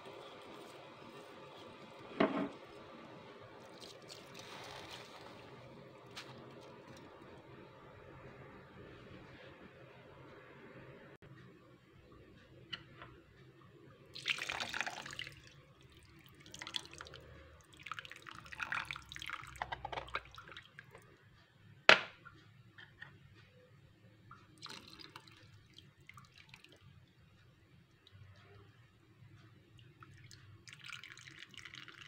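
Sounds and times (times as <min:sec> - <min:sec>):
water pouring and splashing: 0:03.6 - 0:07.3, 0:14.2 - 0:21.0, 0:30.2 - 0:32.0.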